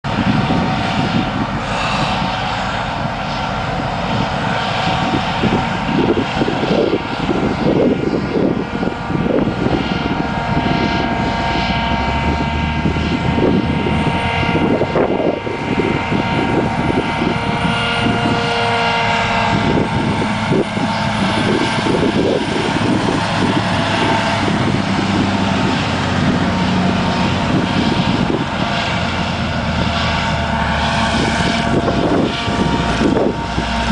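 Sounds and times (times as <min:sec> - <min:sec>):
irregular low rumble: 0:00.1 - 0:18.6, 0:19.2 - 0:33.9
high whining tones: 0:00.2 - 0:33.9.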